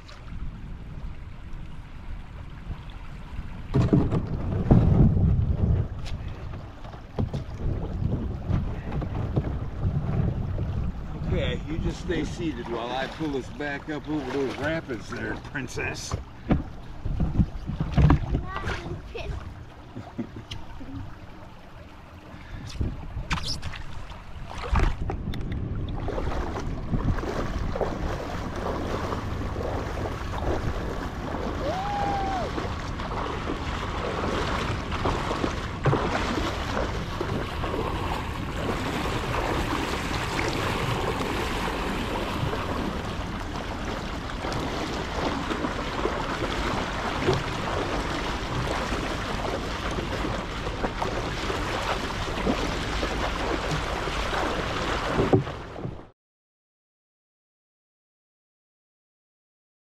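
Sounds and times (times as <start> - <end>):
wind buffeting microphone: 0.2 - 15.5, 16.4 - 19.4, 22.4 - 23.6, 24.2 - 53.9
river water rushing and splashing: 11.3 - 16.5, 26.0 - 55.7.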